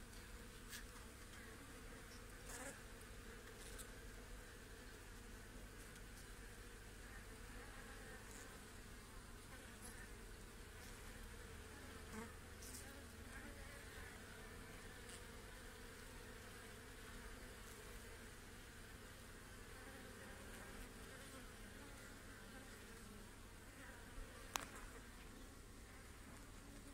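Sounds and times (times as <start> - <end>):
faint ticks: 24.4 - 24.9.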